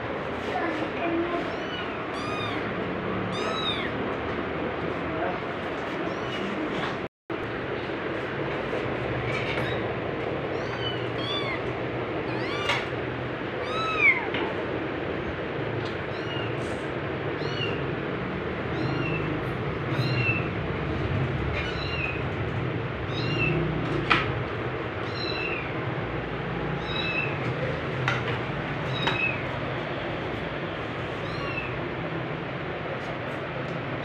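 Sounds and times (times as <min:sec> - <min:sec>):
kitten mewing: 0:01.4 - 0:04.0, 0:10.6 - 0:12.9, 0:13.6 - 0:14.3.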